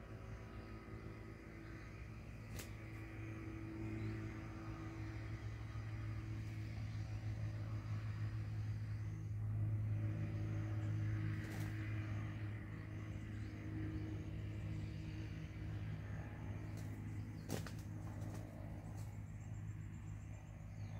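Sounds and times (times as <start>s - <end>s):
low engine drone: 0.0s - 20.9s.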